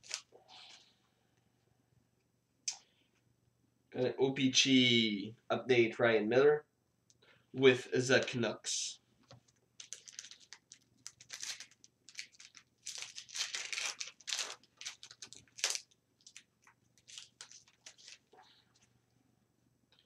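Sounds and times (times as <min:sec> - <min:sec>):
wrapper tearing and crinkling: 0:00.0 - 0:00.3, 0:09.8 - 0:18.4.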